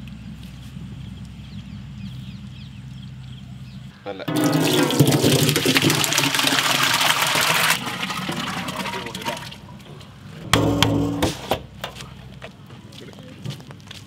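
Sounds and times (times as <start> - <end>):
syrup splashing into steel vessel: 4.3 - 9.5.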